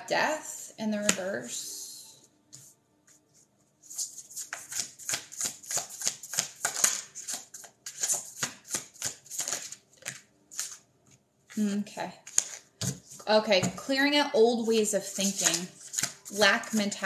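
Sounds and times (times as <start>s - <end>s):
cards being shuffled: 3.8s - 13.2s, 15.1s - 16.8s.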